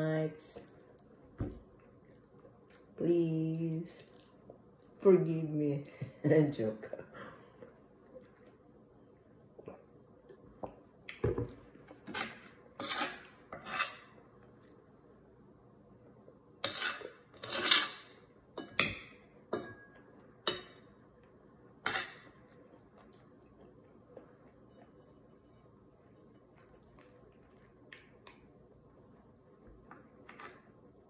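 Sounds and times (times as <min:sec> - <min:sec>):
cutlery scraping ceramic plate: 0:12.1 - 0:14.1, 0:16.6 - 0:18.8, 0:21.8 - 0:22.3.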